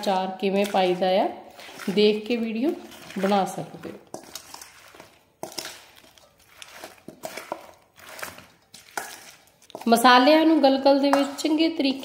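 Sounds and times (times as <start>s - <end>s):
metal spoon scraping steel bowl: 0.0s - 12.0s
moist squish of citrus pieces: 0.3s - 10.1s.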